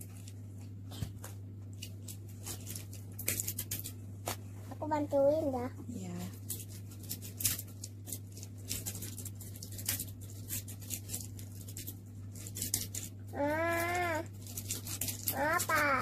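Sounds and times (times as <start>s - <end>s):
plastic toy eggs clicking and crinkling: 1.7s - 4.0s, 6.4s - 16.0s
child vocal sound: 13.3s - 14.3s, 15.3s - 16.0s.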